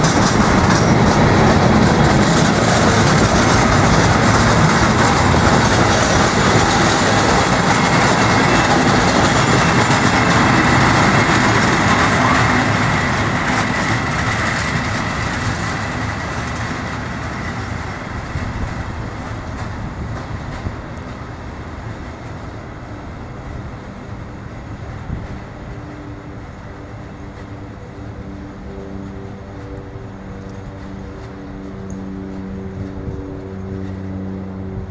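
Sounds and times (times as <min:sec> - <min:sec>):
train wheels clattering on rails: 0:00.0 - 0:34.9.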